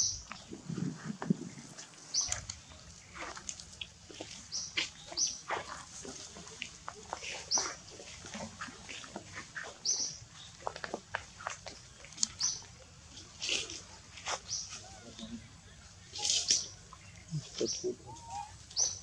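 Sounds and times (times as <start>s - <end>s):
high-pitched animal calls: 17.3s - 19.0s.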